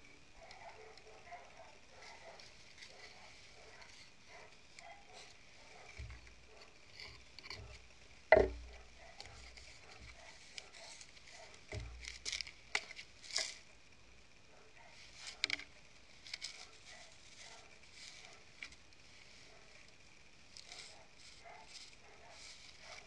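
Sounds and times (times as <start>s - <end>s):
plastic jars knocking on wooden boards: 7.5s - 8.8s.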